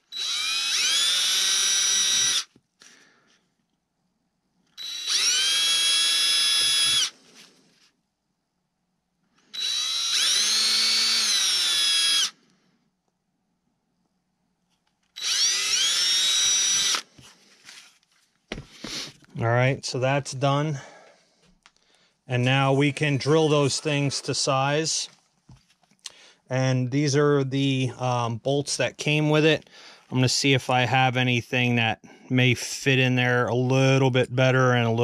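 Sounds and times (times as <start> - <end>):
cordless drill boring into wood: 0.0 - 2.5, 4.8 - 7.2, 9.5 - 12.4, 15.1 - 17.2.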